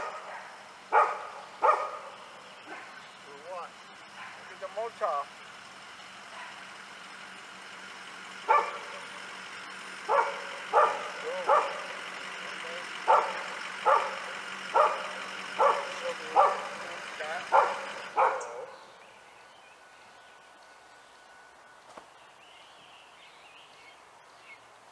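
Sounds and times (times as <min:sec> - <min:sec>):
dog barking: 0:00.0 - 0:03.1, 0:04.1 - 0:04.6, 0:06.3 - 0:06.7, 0:08.5 - 0:09.1, 0:10.1 - 0:12.0, 0:13.0 - 0:16.8, 0:17.4 - 0:18.9
engine idling: 0:00.0 - 0:22.8.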